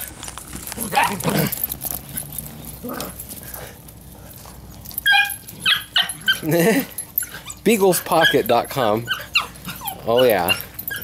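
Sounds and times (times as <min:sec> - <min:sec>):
puppies giving high-pitched cries: 0:00.8 - 0:03.2, 0:04.8 - 0:11.0.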